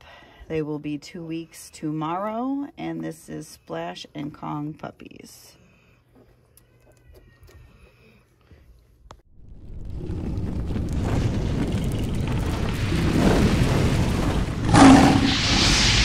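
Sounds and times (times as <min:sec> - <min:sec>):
rumble of flames: 0:09.3 - 0:16.0
boom: 0:09.4 - 0:16.0
lingering hiss: 0:12.9 - 0:16.0.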